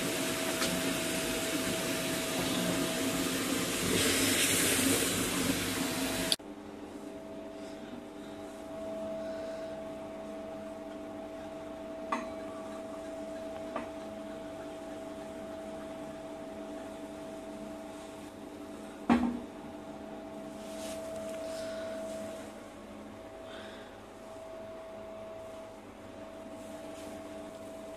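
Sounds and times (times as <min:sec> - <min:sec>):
steady hum with fixed tones: 0:00.0 - 0:27.9.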